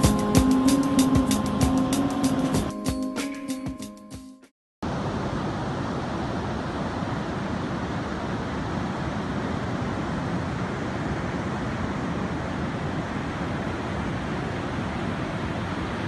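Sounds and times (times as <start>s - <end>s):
ocean surf washing: 0.0s - 2.8s, 4.8s - 16.0s.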